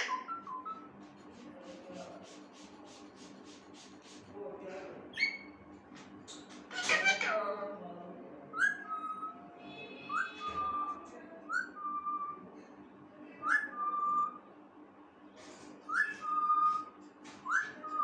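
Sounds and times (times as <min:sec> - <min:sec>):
parakeet whistling phone tone: 0:08.6 - 0:11.0.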